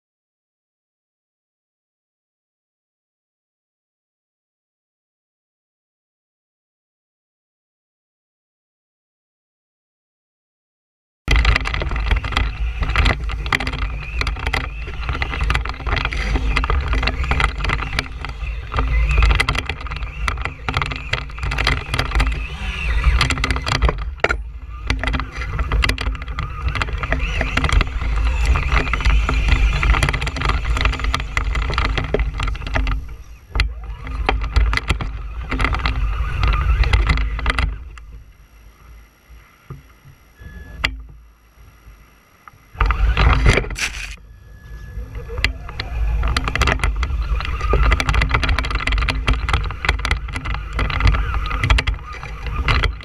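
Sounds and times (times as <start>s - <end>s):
rattling and clicking from bumps: 11.3s - 38.2s, 42.8s - 44.2s, 45.1s - 53.0s
electric motor whine: 11.4s - 53.0s.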